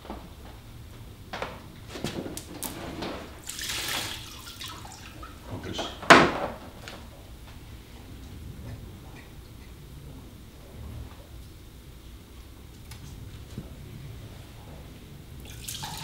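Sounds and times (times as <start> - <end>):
liquid trickling and splashing: 3.4 - 5.5, 15.4 - 16.0
hose and bucket knocks: 5.8 - 7.0.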